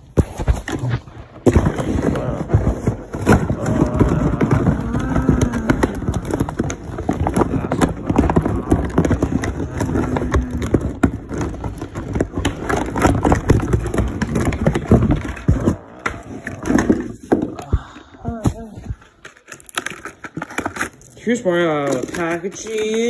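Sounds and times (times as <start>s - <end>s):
cardboard box knocks and scrapes: 0.0s - 4.6s
loose contents shifting in box: 0.2s - 23.0s.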